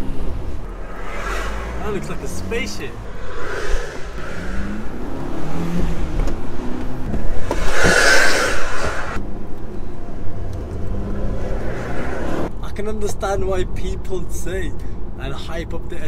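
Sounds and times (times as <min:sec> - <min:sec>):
car engine from inside cabin: 0:00.0 - 0:07.9
loud rushing whoosh: 0:00.0 - 0:09.2.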